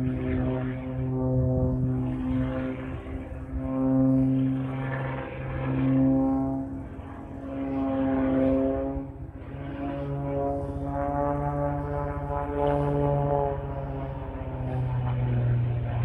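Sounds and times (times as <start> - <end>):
propeller plane engine: 0.0 - 16.0.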